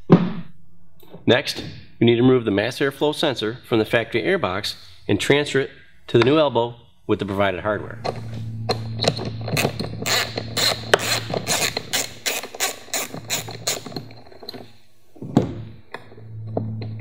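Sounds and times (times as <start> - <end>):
screwdriver clicking: 9.0 - 14.2.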